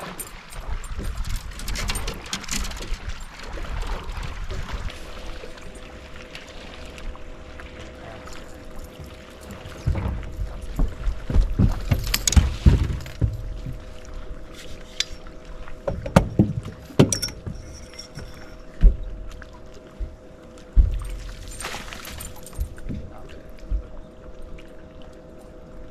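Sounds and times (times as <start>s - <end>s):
knocks and thumps on boat hull: 9.0s - 13.9s, 15.8s - 17.6s.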